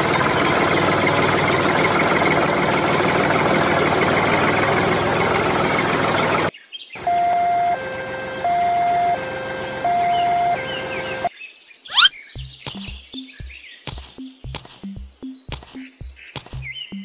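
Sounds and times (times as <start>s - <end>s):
engine running: 0.0s - 11.3s
two-tone siren: 7.0s - 11.3s.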